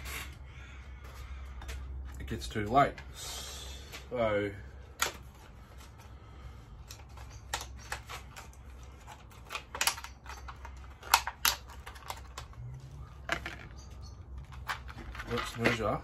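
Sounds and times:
sharp plastic snaps: 0:06.8 - 0:12.6
packaging clicks and crackles: 0:06.8 - 0:16.0.

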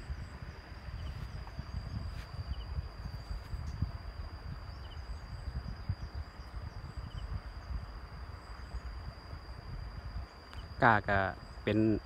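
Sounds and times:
high-pitched insect trill: 0:00.0 - 0:12.0
wind on microphone: 0:00.0 - 0:12.0.

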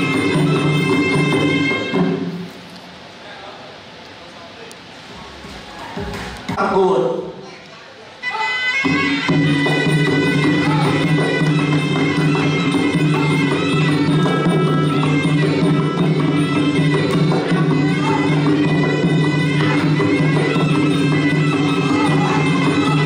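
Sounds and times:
shrill reed pipe melody: 0:00.0 - 0:02.5, 0:08.2 - 0:23.0
hand drums: 0:00.0 - 0:02.6, 0:08.8 - 0:23.0.

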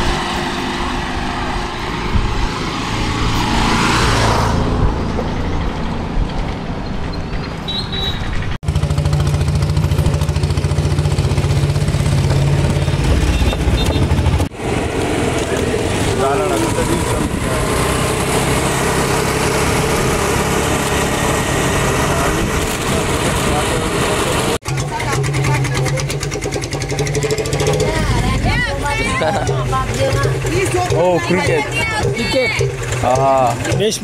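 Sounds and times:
road traffic: 0:00.0 - 0:34.0
wind hissing on microphone: 0:01.7 - 0:03.6
motorcycle engine running: 0:07.3 - 0:34.0.

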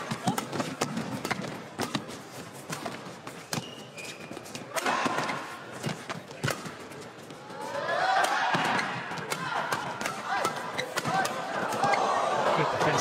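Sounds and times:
rackets hitting shuttlecock: 0:00.0 - 0:07.1, 0:08.1 - 0:12.1
shoes squeaking on court: 0:00.0 - 0:07.5, 0:10.6 - 0:11.0
crowd reacting: 0:07.6 - 0:13.0.

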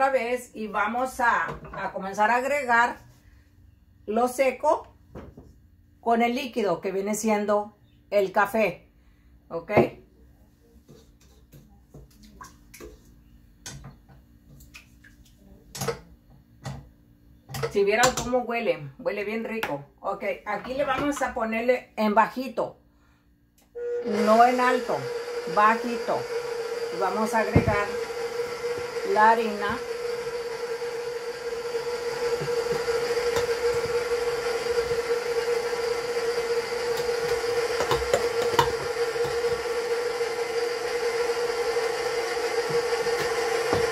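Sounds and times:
stand mixer motor whine: 0:23.8 - 0:43.9.

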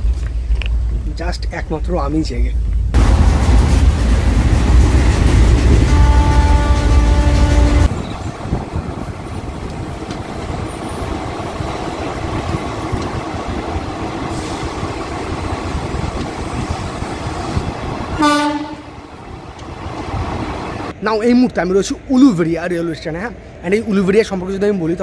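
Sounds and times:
train wheels rumbling: 0:00.0 - 0:21.0
train horn blast: 0:05.7 - 0:07.9, 0:18.2 - 0:19.1.

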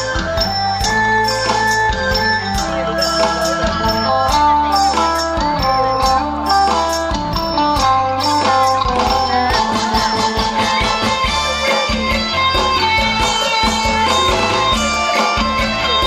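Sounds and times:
bass line: 0:00.0 - 0:16.0
drums: 0:00.0 - 0:16.0
strummed guitar chords: 0:00.0 - 0:16.0.

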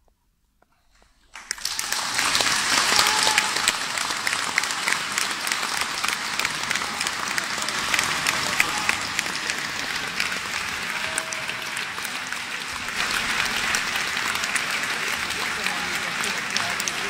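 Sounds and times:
audience applauding: 0:01.2 - 0:17.0.

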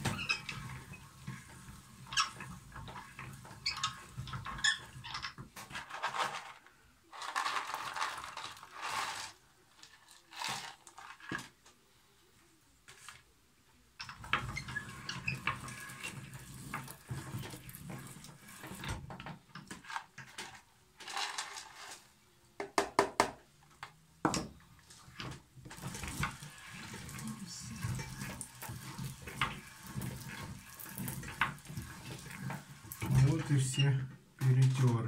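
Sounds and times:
meat grinder clattering and scraping: 0:00.0 - 0:06.5, 0:14.0 - 0:21.8, 0:25.1 - 0:33.7
walnut pieces clicking into hopper: 0:19.6 - 0:22.0.

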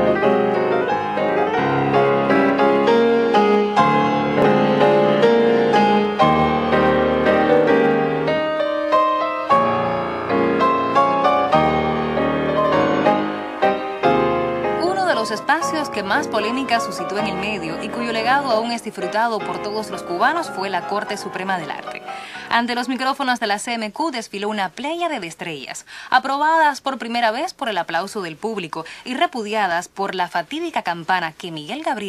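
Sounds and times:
instrumental piano music: 0:00.0 - 0:23.1.

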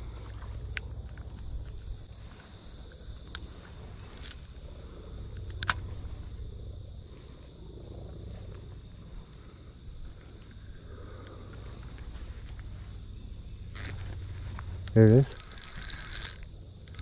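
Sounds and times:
sharp clicks: 0:05.3 - 0:06.3, 0:14.6 - 0:17.0
spinning reel whirring: 0:14.8 - 0:17.0.

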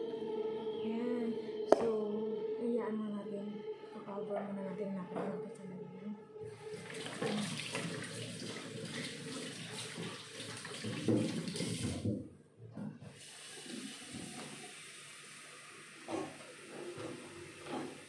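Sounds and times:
tap running into metal sink: 0:06.9 - 0:12.2.

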